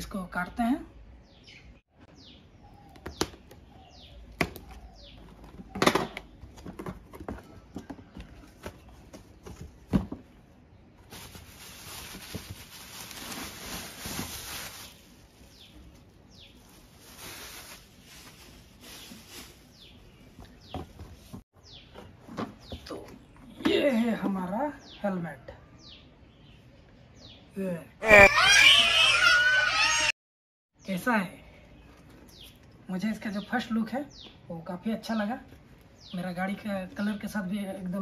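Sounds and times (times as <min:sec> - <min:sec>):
birds chirping: 0:01.0 - 0:09.6, 0:14.9 - 0:16.9, 0:19.0 - 0:30.1, 0:30.8 - 0:37.8
foam wrapping rustling: 0:11.0 - 0:21.4.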